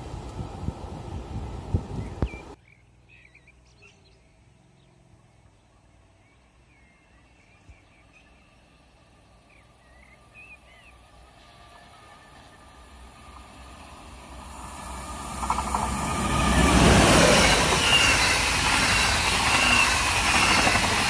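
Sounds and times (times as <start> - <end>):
small birds chirping: 2.0 - 11.1
distant train rumble: 4.5 - 21.0.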